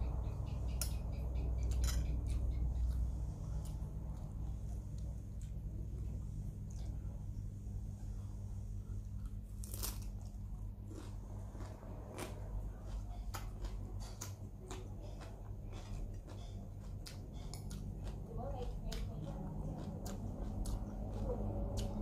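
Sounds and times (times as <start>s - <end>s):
steady low hum: 0.0s - 22.0s
crunchy chewing: 8.8s - 22.0s.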